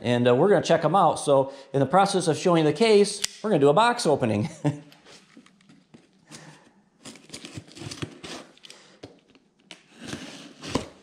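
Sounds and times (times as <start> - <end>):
knife cutting packing tape: 7.0 - 8.6.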